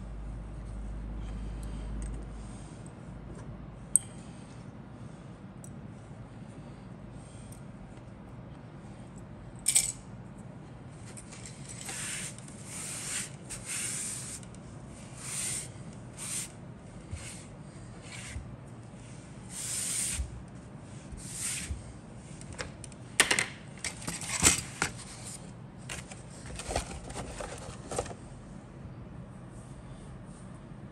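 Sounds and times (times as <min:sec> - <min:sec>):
rustles and scrapes: 0:11.0 - 0:22.4, 0:24.0 - 0:28.3.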